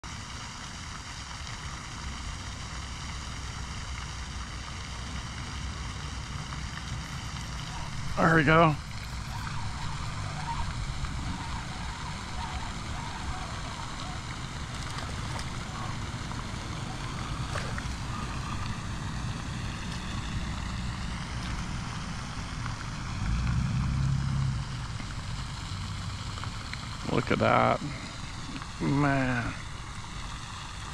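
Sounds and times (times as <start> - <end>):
wind buffeting microphone: 6.3 - 27.0.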